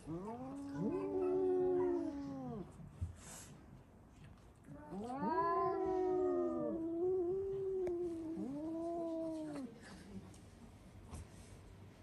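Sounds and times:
cats yowling: 0.0s - 2.6s, 4.7s - 9.6s.

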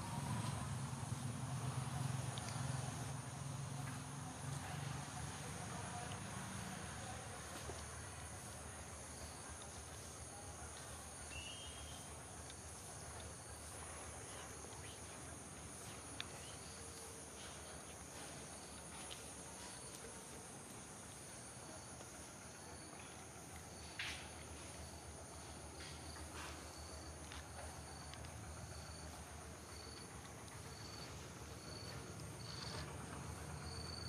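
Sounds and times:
high-pitched insect chorus: 8.3s - 34.0s.

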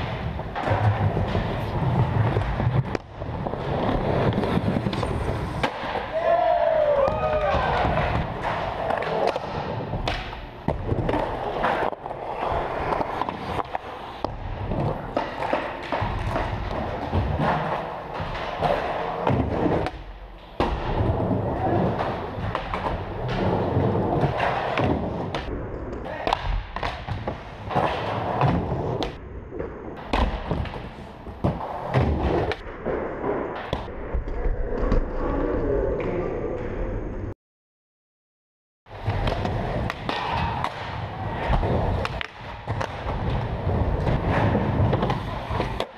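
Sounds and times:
skateboard wheels rumbling: 0.0s - 10.0s
skateboard wheels rolling: 0.0s - 26.2s, 38.9s - 45.9s.

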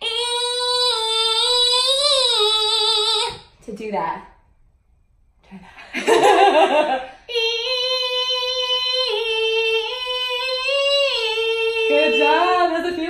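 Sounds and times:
laughter: 5.8s - 7.2s
woman singing a long belted note: 7.3s - 13.0s.

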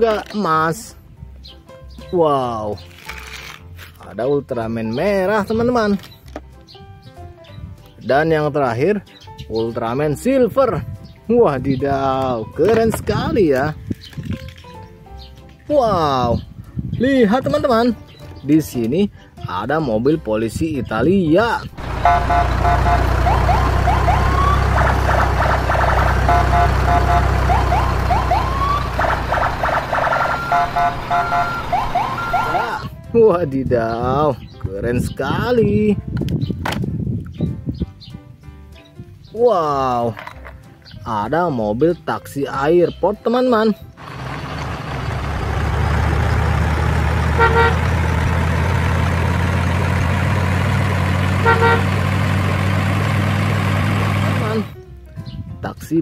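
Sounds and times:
car horn beep: 21.8s - 23.5s, 26.1s - 27.4s, 30.3s - 32.8s, 47.3s - 47.9s, 51.4s - 52.0s
car engine running: 21.8s - 32.6s, 44.0s - 54.7s
toy siren whoops and beeps: 22.0s - 25.1s, 26.3s - 32.9s.

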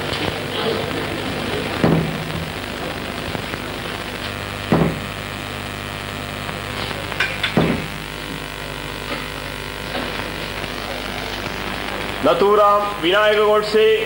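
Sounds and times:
steady hum and hiss: 0.0s - 14.0s
gavel knocking on bench: 4.7s - 5.0s.

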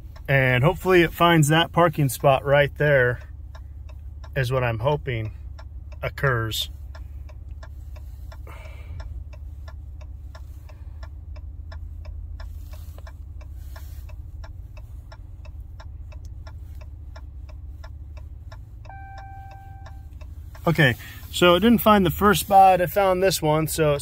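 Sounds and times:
truck low hum: 0.0s - 24.0s
turn signal clicking: 0.0s - 24.0s
chime tone: 18.9s - 20.0s.

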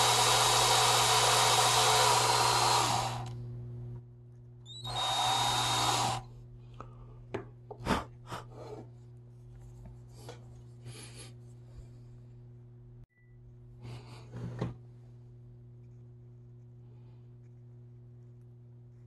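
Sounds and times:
cordless drill drilling wood: 0.0s - 3.4s, 4.7s - 6.3s.

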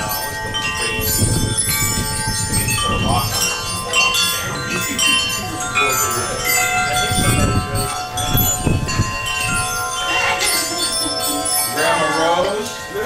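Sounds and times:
low rumble of wind: 0.0s - 11.7s
metal wind chimes ringing: 0.0s - 13.0s.

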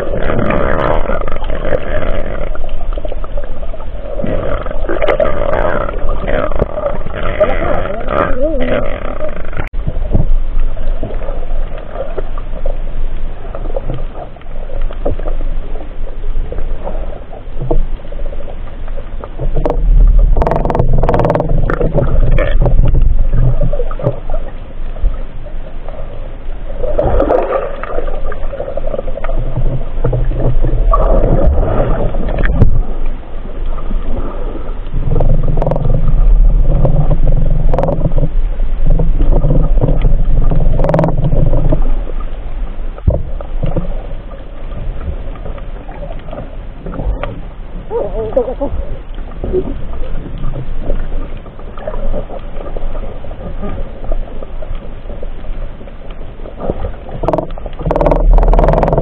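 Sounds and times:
muffled underwater water rumbling: 0.0s - 59.0s.

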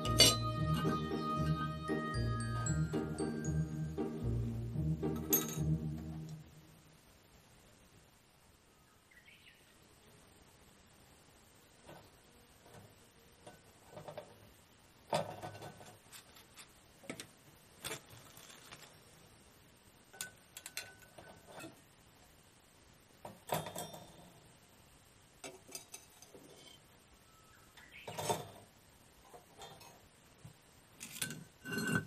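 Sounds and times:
metal pans clinking on grill grate: 0.0s - 1.0s, 5.2s - 5.8s, 15.1s - 18.6s, 20.2s - 21.8s, 23.3s - 24.4s, 25.4s - 26.8s, 28.0s - 28.7s, 29.4s - 30.0s, 31.0s - 32.0s
metal spatula on iron: 0.0s - 1.2s, 5.2s - 5.8s, 20.2s - 21.8s, 25.4s - 26.9s, 31.0s - 32.0s.

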